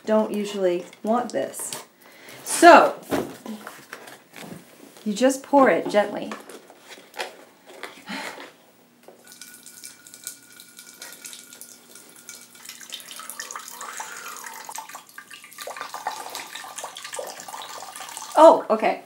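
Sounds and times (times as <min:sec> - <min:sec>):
wine pouring from a tap: 0:09.2 - 0:18.4.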